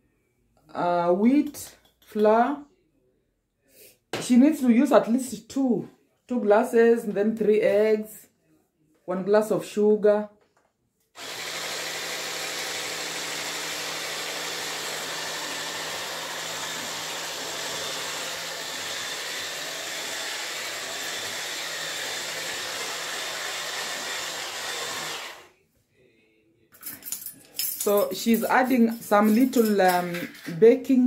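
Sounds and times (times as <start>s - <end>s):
electric mixer beating batter: 11.2s - 25.5s.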